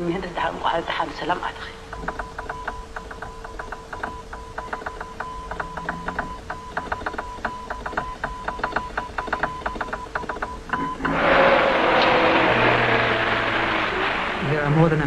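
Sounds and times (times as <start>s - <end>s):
faint steady hum: 0.0s - 15.0s
morse code beeping tone: 1.9s - 11.2s.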